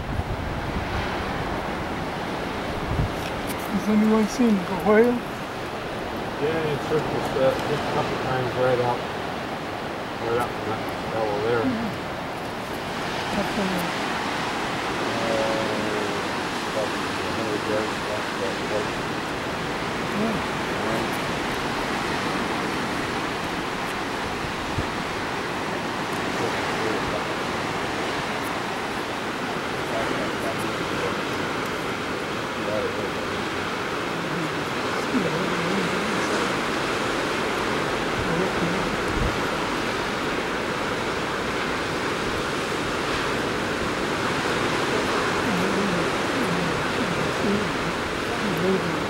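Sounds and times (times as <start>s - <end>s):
ocean surf washing: 0.0s - 49.0s
wind: 0.0s - 49.0s.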